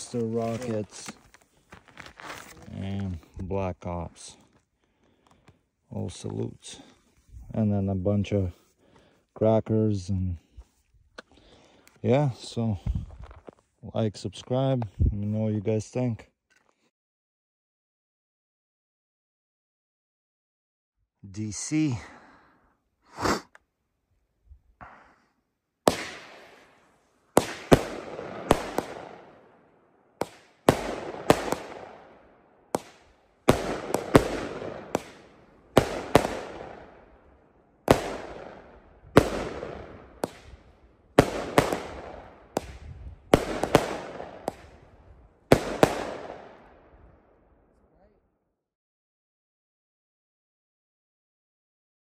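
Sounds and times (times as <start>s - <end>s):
firework bangs echoing: 25.8s - 26.7s, 27.3s - 29.4s, 30.2s - 37.1s, 37.8s - 44.8s, 45.5s - 46.7s.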